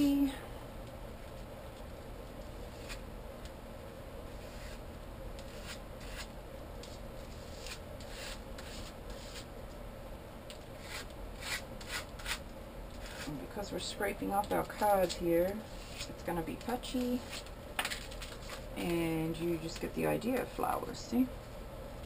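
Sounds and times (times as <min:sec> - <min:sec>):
card scraping across stencil: 0:04.3 - 0:04.8, 0:05.4 - 0:09.5, 0:10.8 - 0:13.4.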